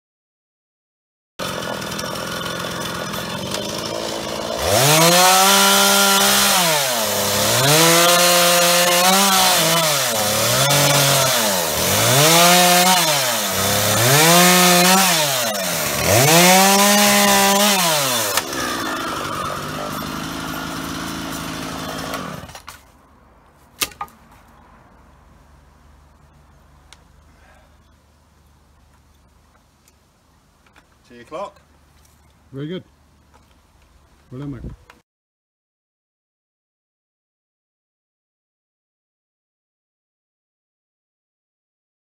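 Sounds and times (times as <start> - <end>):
chainsaw idling and revving: 1.4 - 22.7.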